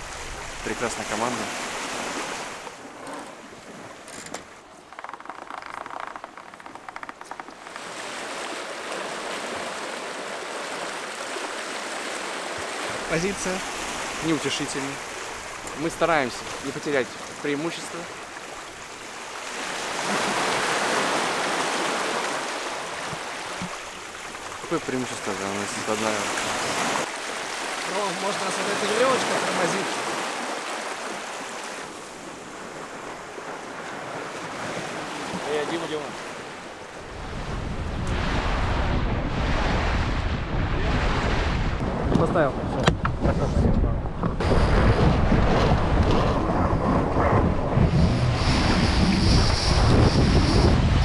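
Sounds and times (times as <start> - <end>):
rushing water from waves: 0.0 - 5.5, 6.4 - 43.3, 44.0 - 51.0
wind buffeting microphone: 36.9 - 51.0.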